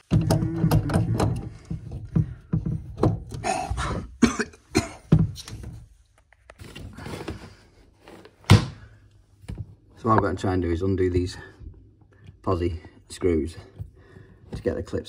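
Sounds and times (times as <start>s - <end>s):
clicks and knocks of plastic fittings: 0.0s - 3.5s.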